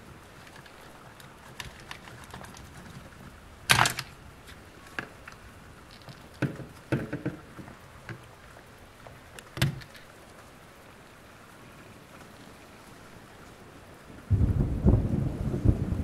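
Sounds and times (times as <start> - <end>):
plastic action figure clicks and knocks: 9.5 - 10.0.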